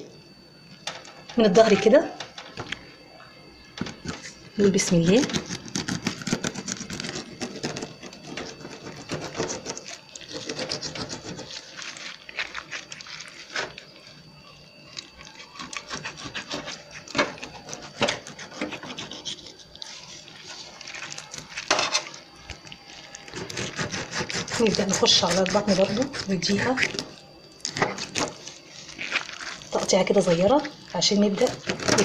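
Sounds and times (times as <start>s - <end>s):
knife scraping fish: 5.2s - 14.1s, 15.0s - 30.4s.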